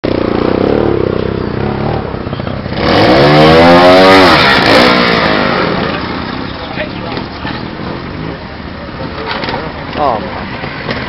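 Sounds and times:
motorcycle engine revving: 0.0 - 8.6.

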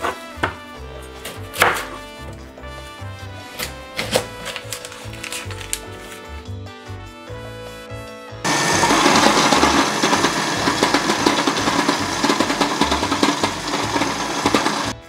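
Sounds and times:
food processor chopping: 8.5 - 15.0.

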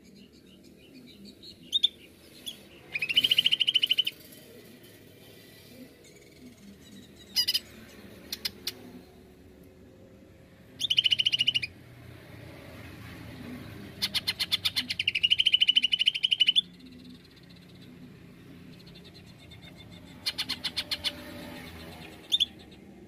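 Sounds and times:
bird calling with trills: 0.9 - 4.3, 10.8 - 11.7, 14.0 - 18.0, 18.8 - 22.8.

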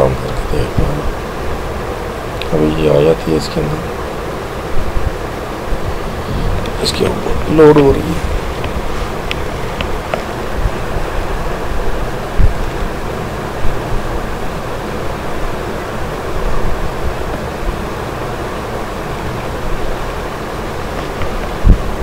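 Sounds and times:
microphone hiss: 0.0 - 22.0
low thumps: 4.7 - 12.9, 21.1 - 22.0.

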